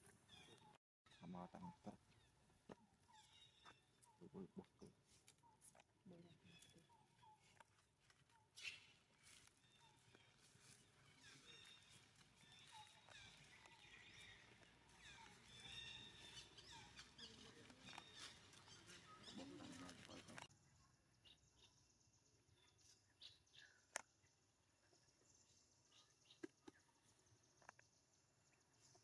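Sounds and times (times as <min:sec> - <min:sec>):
quiet outdoor ambience: 0:00.0 - 0:29.0
high chirping animal calls: 0:11.1 - 0:20.5.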